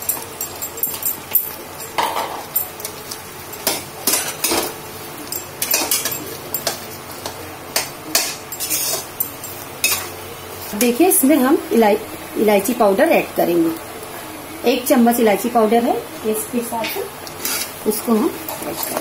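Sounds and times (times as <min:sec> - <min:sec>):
spoon scraping and clinking pan: 0:05.4 - 0:06.9, 0:07.8 - 0:10.2, 0:18.5 - 0:19.0.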